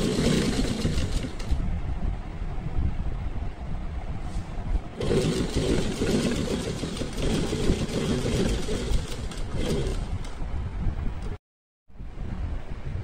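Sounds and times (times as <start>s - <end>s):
sewing machine running: 0.0s - 1.6s, 5.0s - 10.4s.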